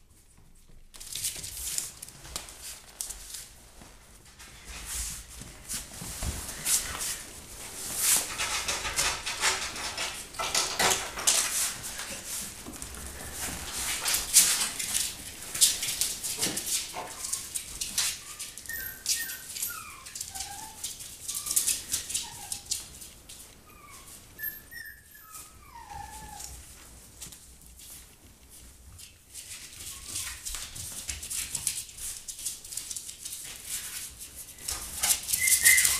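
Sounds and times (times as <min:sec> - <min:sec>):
paws clicking on wooden floor: 0:00.1 - 0:35.9
puppies whimpering and squeaking: 0:07.7 - 0:22.9, 0:23.5 - 0:26.7, 0:29.8 - 0:30.5, 0:34.7 - 0:35.9.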